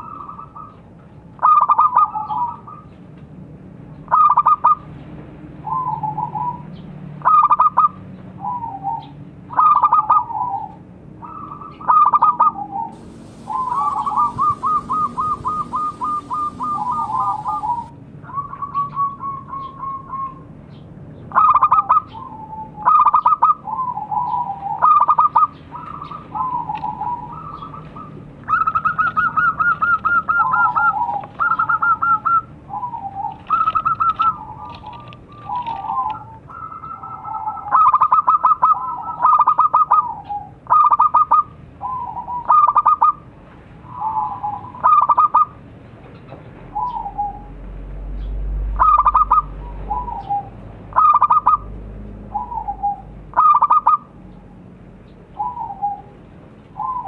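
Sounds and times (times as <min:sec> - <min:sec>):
dove cooing: 0:07.3 - 0:20.3, 0:21.3 - 0:43.2, 0:43.9 - 0:45.6, 0:48.8 - 0:51.7, 0:52.3 - 0:54.1, 0:55.4 - 0:56.1, 0:56.8 - 0:57.0.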